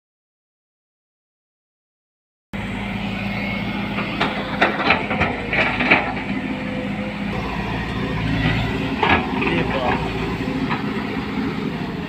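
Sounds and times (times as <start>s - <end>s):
excavator diesel engine running: 2.6s - 12.0s
sharp knocks and clatter: 4.2s - 6.4s, 8.4s - 11.0s.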